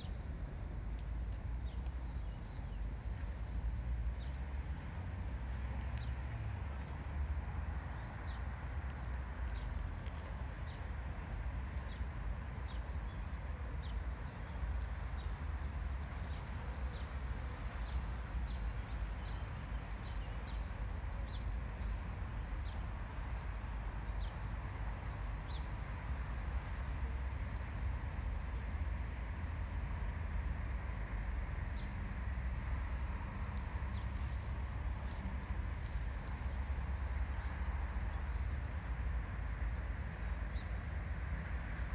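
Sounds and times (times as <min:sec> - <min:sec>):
steady low rumble: 0:00.0 - 0:41.9.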